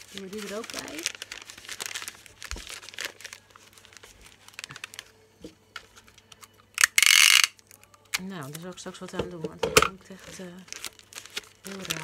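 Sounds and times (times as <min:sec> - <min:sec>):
paper crumpling and rustling: 0:00.0 - 0:06.5, 0:10.0 - 0:12.0.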